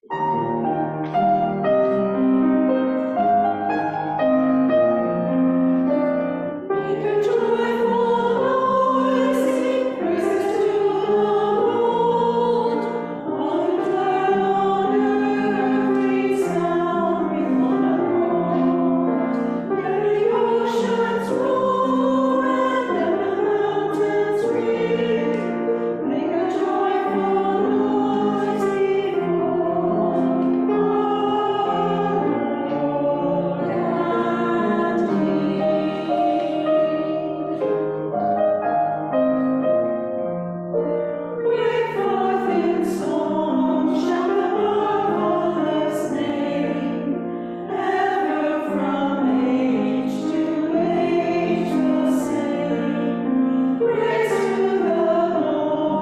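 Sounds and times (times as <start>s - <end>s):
piano accompaniment: 0.0s - 56.0s
women singing together: 6.8s - 37.8s, 41.4s - 56.0s.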